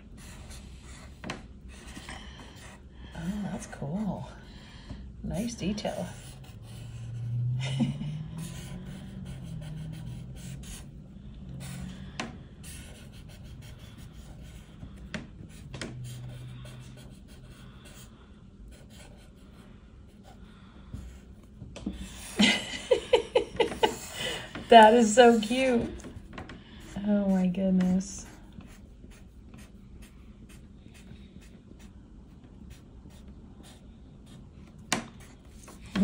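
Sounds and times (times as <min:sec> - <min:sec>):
marker scratching on paper: 0:00.0 - 0:03.7, 0:05.3 - 0:07.4, 0:08.3 - 0:10.9, 0:11.6 - 0:18.1, 0:18.7 - 0:19.6, 0:28.2 - 0:32.0, 0:32.6 - 0:36.0
person speaking: 0:23.9 - 0:26.1.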